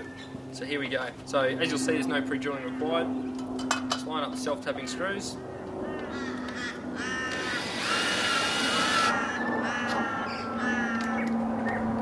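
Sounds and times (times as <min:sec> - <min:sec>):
bird calling: 0:04.8 - 0:11.9
cordless drill motor humming: 0:07.0 - 0:09.2.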